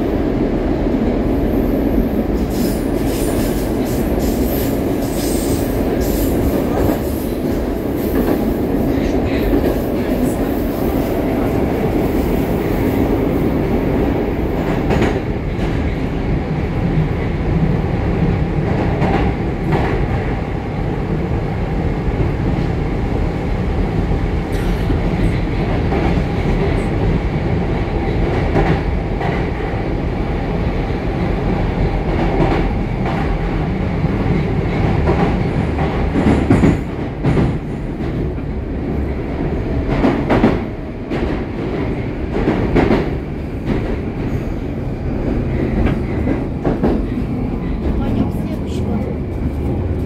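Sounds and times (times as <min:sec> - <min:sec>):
train wheels rumbling on rails: 0:00.0 - 0:50.0.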